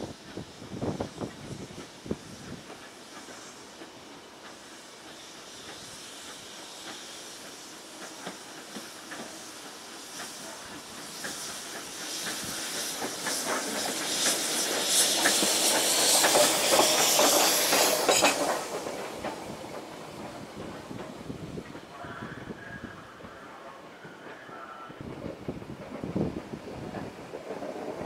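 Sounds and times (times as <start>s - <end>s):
steam locomotive hissing steam: 0.0s - 28.0s
wheels clicking on rails: 2.5s - 22.0s.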